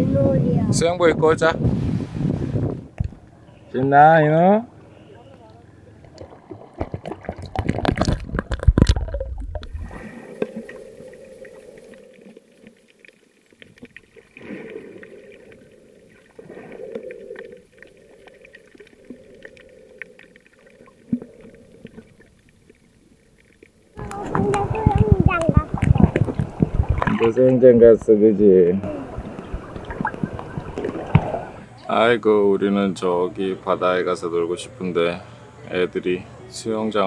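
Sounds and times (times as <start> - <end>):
muffled underwater wash: 5.6 - 31.9
water splashing at surface: 6.0 - 27.6, 28.8 - 31.7.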